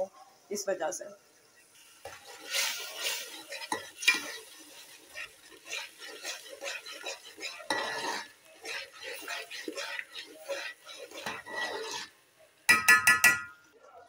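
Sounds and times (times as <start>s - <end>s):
paste frying: 1.4s - 13.9s
spoon scraping paste in pot: 2.0s - 12.2s
spoon knocking metal pot: 12.7s - 13.6s.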